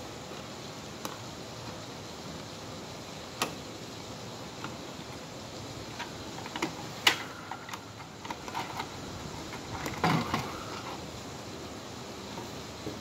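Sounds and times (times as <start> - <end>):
plastic clatter: 6.0 - 11.0.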